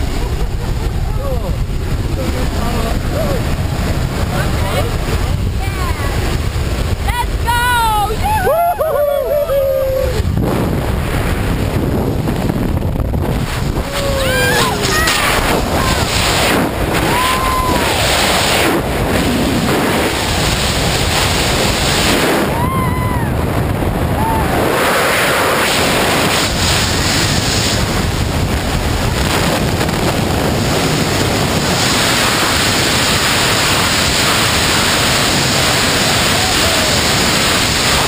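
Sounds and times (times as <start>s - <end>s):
wind rushing over microphone: 0.0s - 38.0s.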